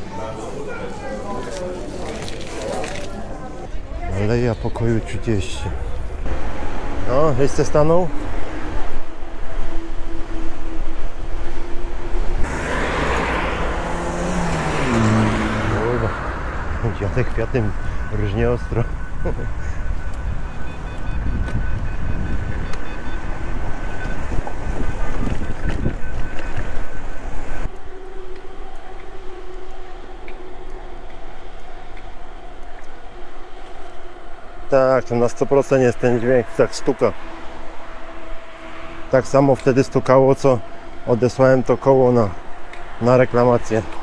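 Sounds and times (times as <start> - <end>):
tyres hissing and traffic: 0.0 - 44.0
low engine-like hum: 5.0 - 44.0
electric bike whine: 5.6 - 44.0
wind rumble on microphone: 16.1 - 29.0.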